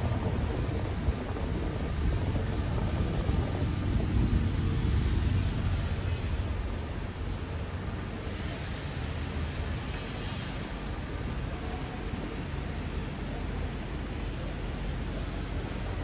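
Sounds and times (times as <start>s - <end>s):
city street traffic rumble: 0.0s - 16.0s.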